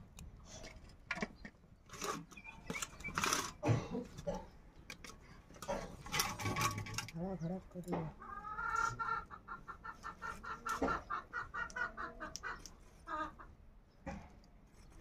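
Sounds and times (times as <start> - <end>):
fowl clucking: 8.0 - 13.6.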